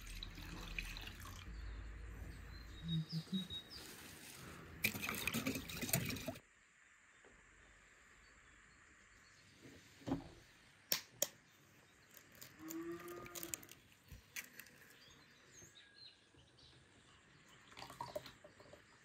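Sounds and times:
birds chirping faintly: 0.0 - 19.0
distant cow mooing: 12.6 - 13.7.

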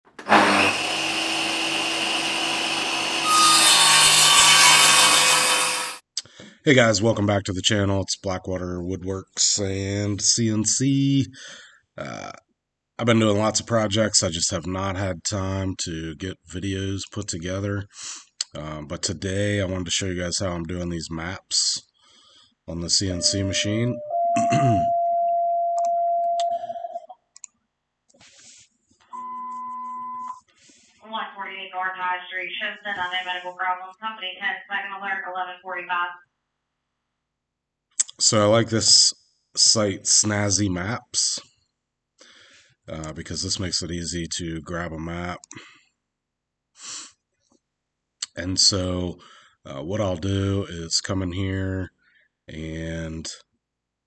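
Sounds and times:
circular saw cutting wood: 0.2 - 6.0
higher quieter electronic tone: 23.1 - 27.0
long electronic tone: 23.1 - 27.0.

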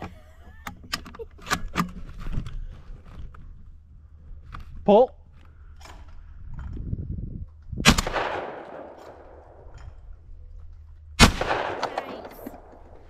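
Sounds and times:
shotgun shots with echo: 7.8 - 9.6, 11.2 - 12.7.

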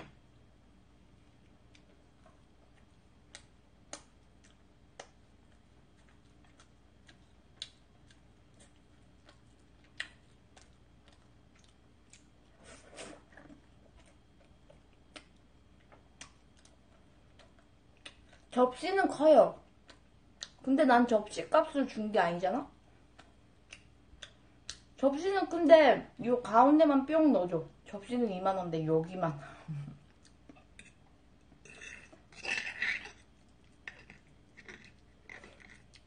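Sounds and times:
soft chewing: 0.9 - 18.6, 19.6 - 20.7, 22.7 - 25.0, 29.7 - 36.0.

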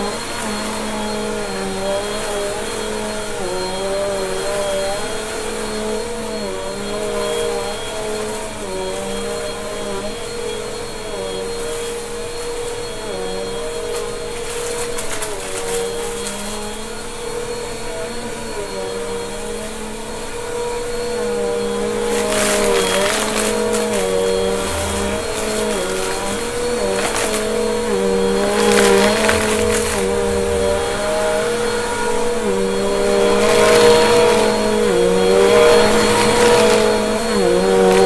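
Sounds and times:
vacuum cleaner on carpet: 0.0 - 38.0.

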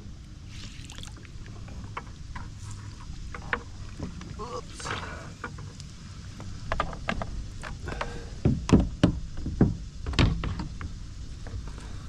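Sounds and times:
rope knocking against kayak hull: 6.7 - 10.9.

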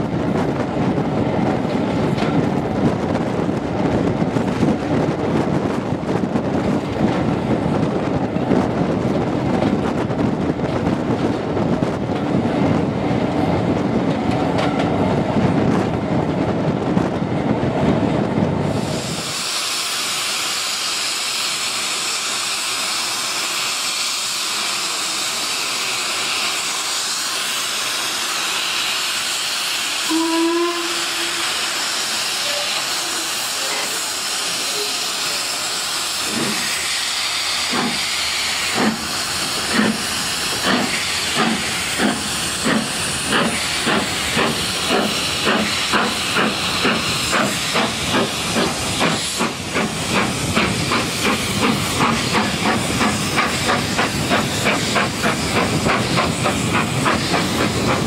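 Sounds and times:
steam locomotive hissing: 18.4 - 58.0
steam whistle: 30.0 - 31.7.

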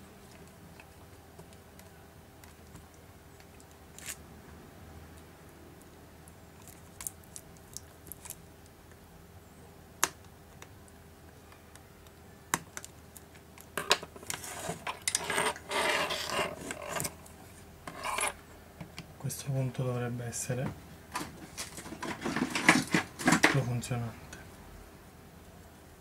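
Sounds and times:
scraping and rustling on workbench: 13.8 - 18.4, 21.1 - 23.6.

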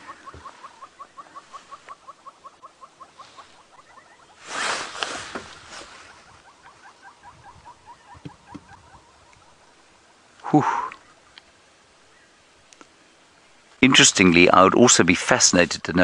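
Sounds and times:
brief hiss: 4.4 - 6.1.

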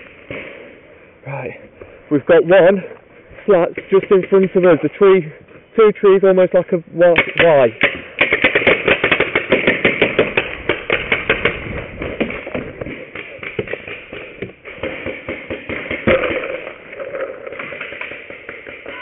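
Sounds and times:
paintball markers firing: 7.1 - 19.0.

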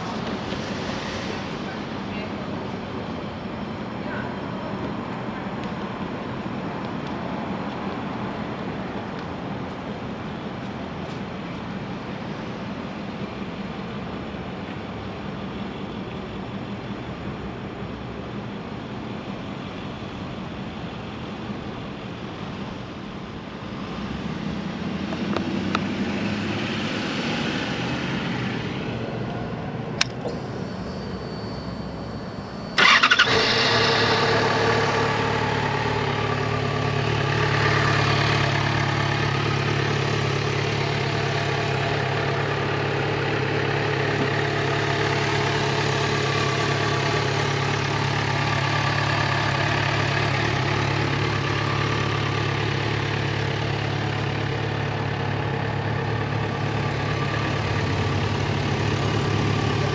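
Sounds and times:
outdoor background noise: 0.0 - 59.9
motorcycle engine starting and idling: 28.9 - 59.9
sharp click: 30.0 - 30.4.

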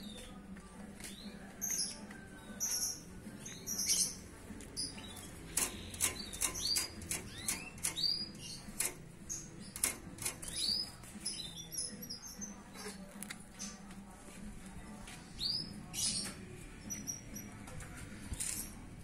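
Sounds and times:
canary chirping: 1.1 - 13.8, 15.4 - 17.6.

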